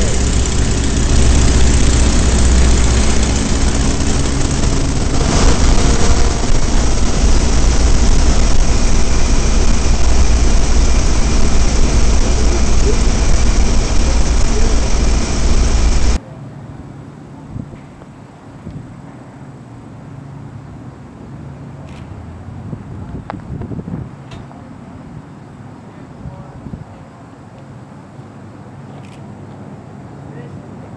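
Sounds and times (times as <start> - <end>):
biplane engine and propeller: 0.0 - 16.2
heavy wind rush: 0.0 - 16.2, 22.6 - 24.2.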